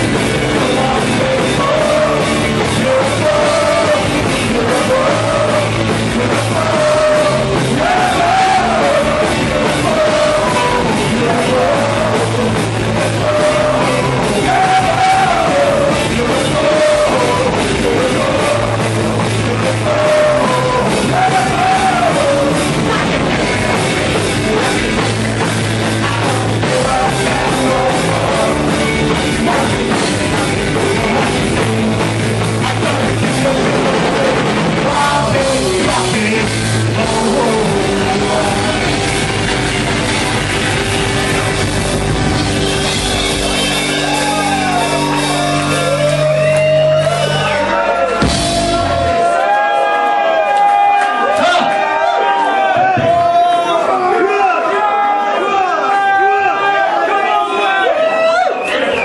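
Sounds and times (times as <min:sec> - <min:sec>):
person singing: 0:00.0 - 0:39.5
punk rock band playing live: 0:00.0 - 0:50.2.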